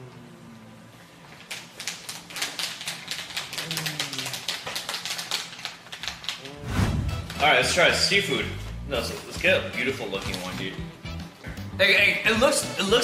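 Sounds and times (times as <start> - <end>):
chip bags crinkling: 1.4 - 6.5.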